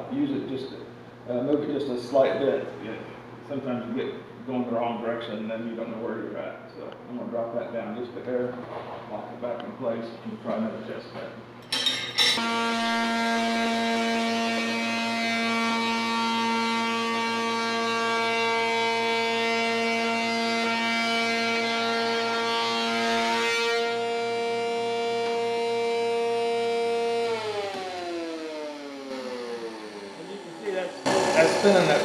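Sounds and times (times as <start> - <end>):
spindle shaper whining: 11.7 - 32.0
cutter cutting board: 26.9 - 32.0.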